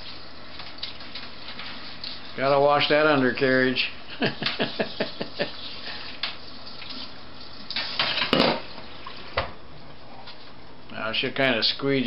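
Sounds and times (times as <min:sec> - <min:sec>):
water splashing in sink: 0:04.2 - 0:09.6.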